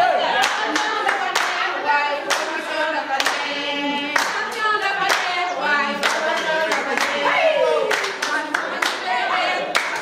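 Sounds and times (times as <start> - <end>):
group singing in unison: 0.0 - 10.0
hands clapping to a beat: 0.4 - 1.6, 2.2 - 2.6, 3.2 - 3.5, 4.1 - 5.4, 6.0 - 7.2, 7.9 - 9.0, 9.7 - 10.0.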